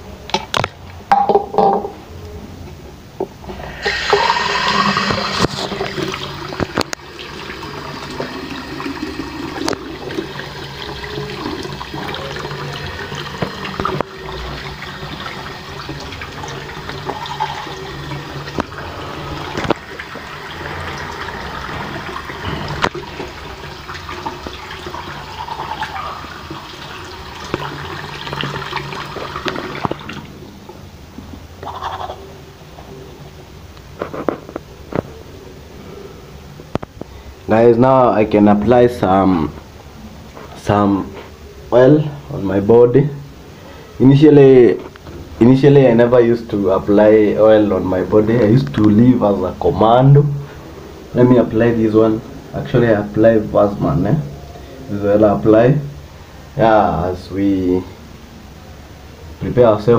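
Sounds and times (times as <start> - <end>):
water running: 3.4 - 30.9.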